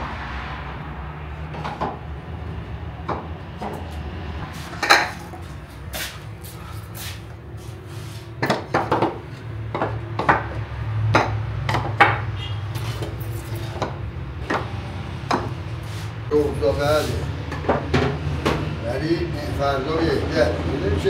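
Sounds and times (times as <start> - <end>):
clay pots clinking: 4.7 - 5.6.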